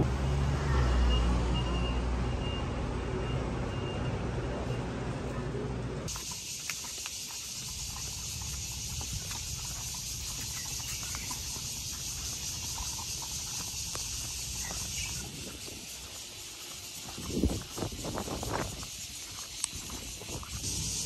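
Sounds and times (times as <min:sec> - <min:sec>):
low road rumble: 0:00.0 - 0:21.0
cicadas buzzing: 0:06.1 - 0:21.0.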